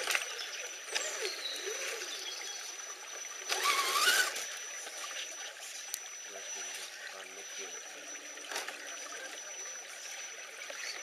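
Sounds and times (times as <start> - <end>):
shallow stream over stones: 0.0 - 11.0
electric motor whine: 3.5 - 4.6.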